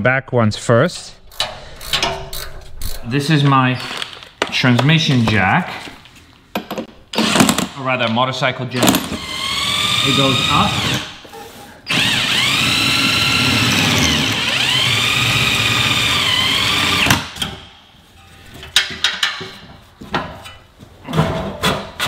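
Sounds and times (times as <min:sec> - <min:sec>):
power drill motor whine: 0:09.2 - 0:11.1, 0:11.9 - 0:17.1.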